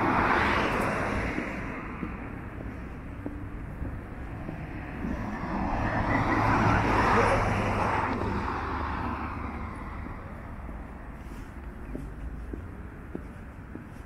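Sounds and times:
car driving past: 4.2s - 10.9s.

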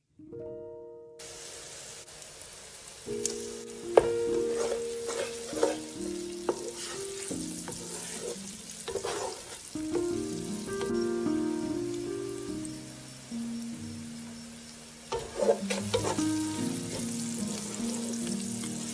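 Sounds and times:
background music with held notes: 0.1s - 1.3s, 3.1s - 8.8s, 9.7s - 18.9s
onions sizzling in a pan: 1.2s - 18.9s
spatula scraping a pan: 4.0s - 10.1s, 15.1s - 18.2s.

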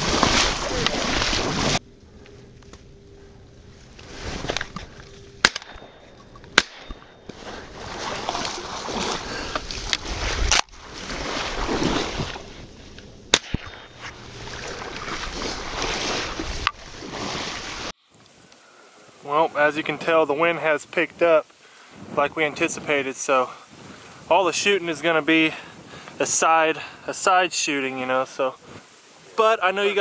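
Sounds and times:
wind gusting over microphone: 21.9s - 26.3s.

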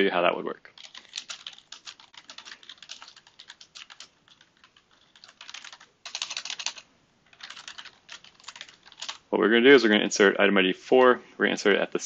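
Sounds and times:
computer keyboard typing: 0.7s - 9.3s.

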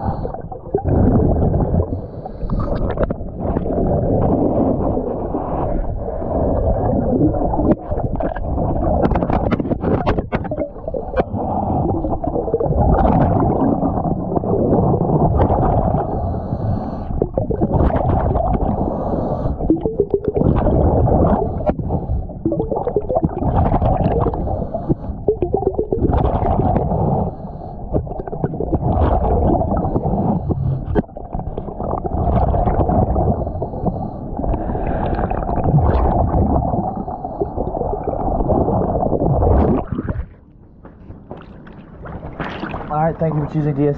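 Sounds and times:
diver breathing through regulator: 0.0s - 4.1s, 15.8s - 17.7s, 18.5s - 22.5s, 24.1s - 25.4s, 26.7s - 28.8s, 29.4s - 32.2s, 32.8s - 38.5s
exhaled bubbles gurgling: 0.0s - 40.6s, 41.3s - 43.9s.

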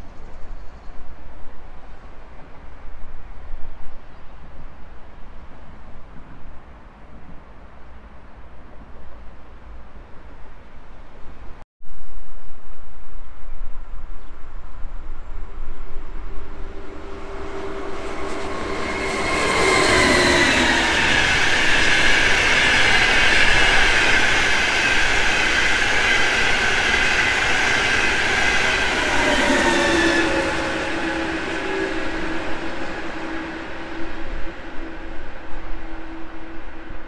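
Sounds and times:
train passing with high whine: 14.6s - 37.0s.

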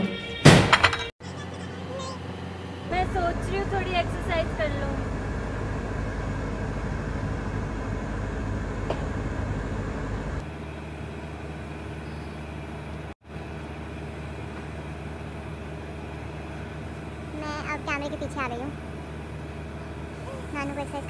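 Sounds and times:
low background rumble: 1.6s - 10.8s.

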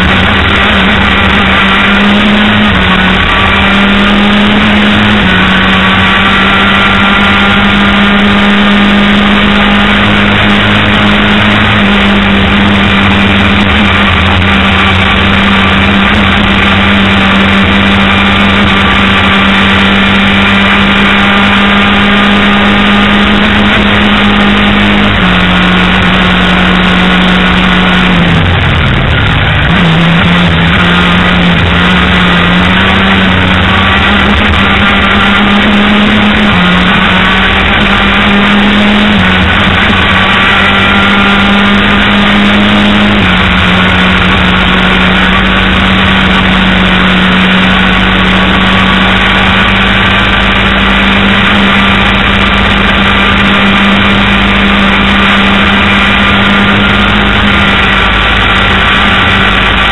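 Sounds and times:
race car engine at high revs: 0.0s - 59.9s
wind and road noise: 0.0s - 59.9s.

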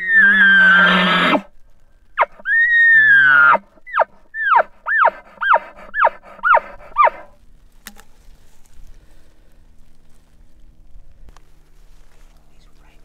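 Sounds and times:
elk bugling and chuckling: 0.0s - 1.5s, 2.2s - 7.4s.

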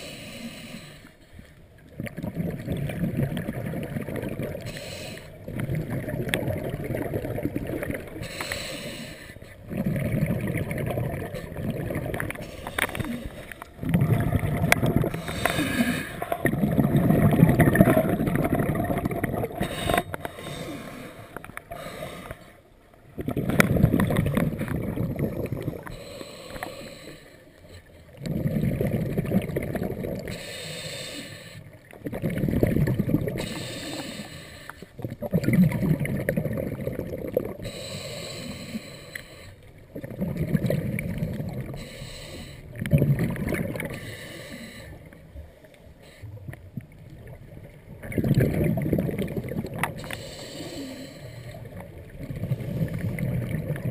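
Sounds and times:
diver breathing through regulator: 0.0s - 1.6s, 4.6s - 5.5s, 8.2s - 9.9s, 12.3s - 18.7s, 19.4s - 22.7s, 25.6s - 28.6s, 30.3s - 31.7s, 33.2s - 35.0s, 37.6s - 39.7s, 41.6s - 42.8s, 43.8s - 45.2s, 49.9s - 51.8s
exhaled bubbles rumbling: 1.7s - 9.0s, 9.6s - 27.0s, 28.0s - 30.5s, 31.7s - 38.8s, 39.8s - 41.9s, 42.6s - 44.1s, 44.9s - 53.9s.

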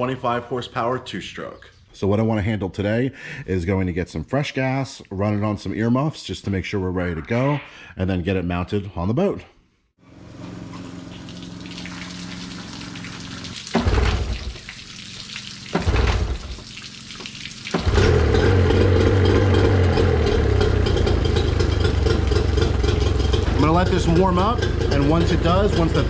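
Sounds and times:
outboard engine starting and running: 10.0s - 26.0s
hose water hissing: 10.6s - 18.4s.

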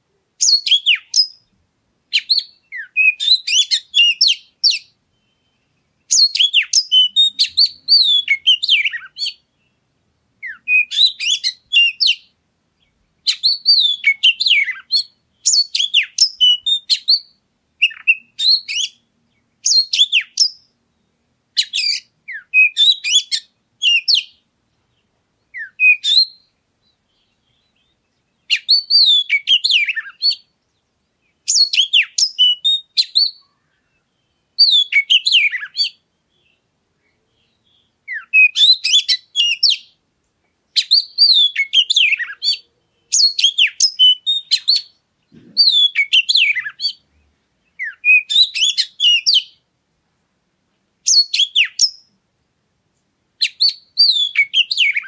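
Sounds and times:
bird singing high whistles: 0.4s - 1.4s, 2.1s - 9.8s, 10.4s - 12.3s, 13.2s - 19.0s, 19.6s - 20.8s, 21.6s - 24.4s, 25.5s - 26.5s, 28.5s - 30.5s, 31.5s - 36.0s, 38.1s - 40.0s, 40.8s - 45.0s, 45.6s - 47.0s, 47.8s - 49.6s, 51.0s - 52.1s, 53.4s - 55.0s.

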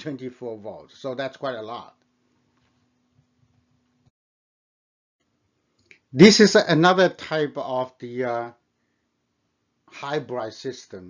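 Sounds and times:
low steady hum: 0.0s - 4.1s.

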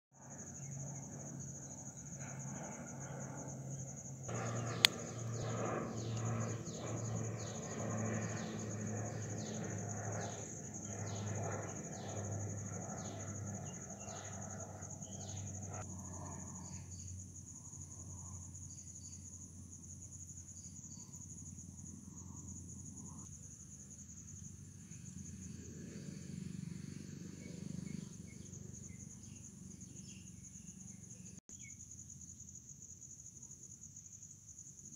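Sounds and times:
insects trilling: 0.2s - 34.9s
low rhythmic pulsing: 4.3s - 10.1s
sharp click: 4.7s - 5.2s.

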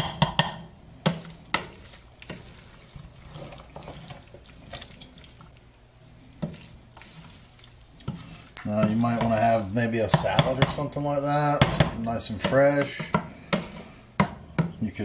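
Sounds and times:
spoon knocking against pot: 0.0s - 1.7s, 11.6s - 14.8s
wet rice churning: 0.0s - 14.1s.

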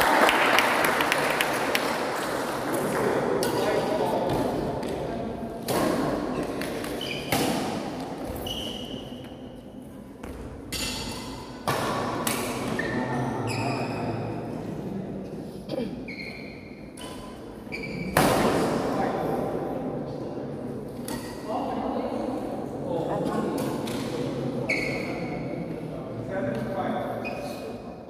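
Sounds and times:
sport shoes squeaking: 6.9s - 7.4s, 8.2s - 9.4s, 12.8s - 14.1s, 16.1s - 18.2s, 24.7s - 25.4s, 27.2s - 27.8s
badminton rackets striking shuttlecock: 10.2s - 12.8s, 21.0s - 21.4s.

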